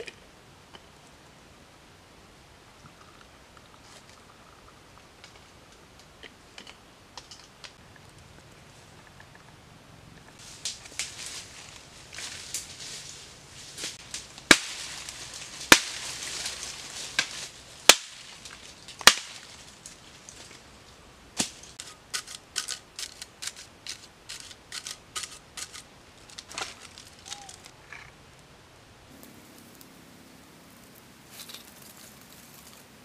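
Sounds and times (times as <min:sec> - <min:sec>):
sticks snapping: 0:14.0 - 0:20.0, 0:21.4 - 0:27.7.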